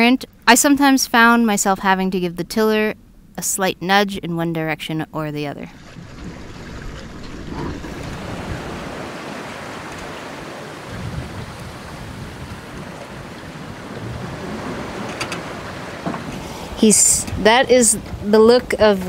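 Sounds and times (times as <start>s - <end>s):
rushing wind and sea water: 5.6s - 19.0s
wind rumbling on microphone: 5.7s - 19.0s.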